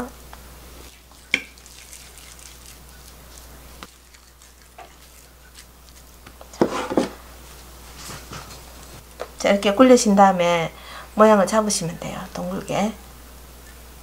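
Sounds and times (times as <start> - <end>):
hands rolling meat mixture: 0.7 - 9.3
glass dish scraping on table: 6.6 - 7.2.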